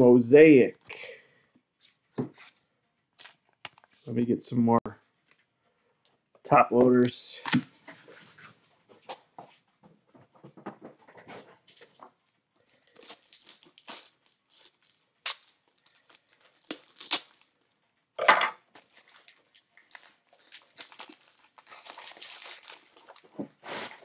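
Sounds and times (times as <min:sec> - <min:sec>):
plastic packaging crinkling: 0:11.9 - 0:24.0.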